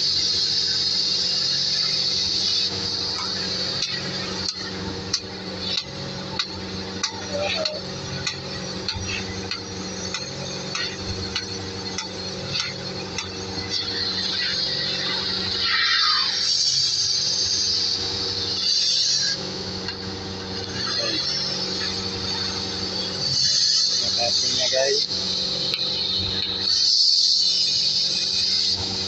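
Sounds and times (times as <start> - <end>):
cutting torch hissing: 0.0 - 29.0
steady low hum: 0.0 - 29.0.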